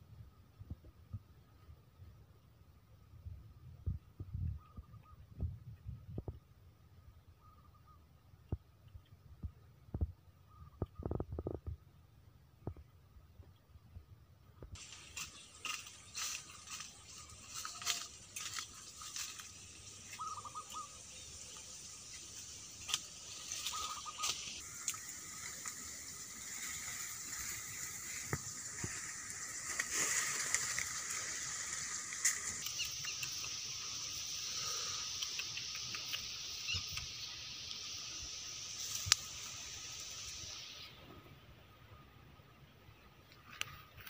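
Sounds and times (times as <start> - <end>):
plant stems and grass rustling: 14.7 - 41.3, 43.2 - 44.0
footsteps crunching on dry leaves: 14.8 - 20.8, 22.2 - 32.7.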